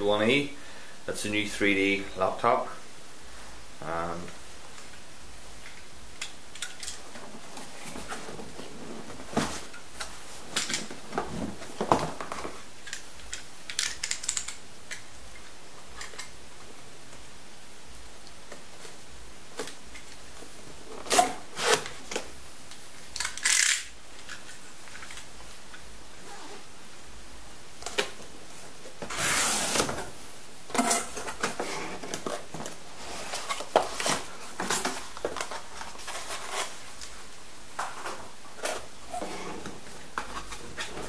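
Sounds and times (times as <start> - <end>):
cardboard and tape rustling: 6.9 - 13.1, 27.8 - 41.0.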